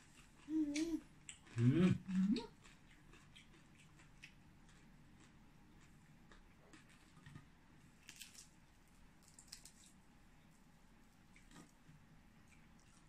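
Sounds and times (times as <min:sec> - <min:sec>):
chewing: 0:00.0 - 0:08.5, 0:11.3 - 0:13.0
soft crackles and smacks: 0:02.2 - 0:13.0
fingers tearing crispy food: 0:08.0 - 0:10.0.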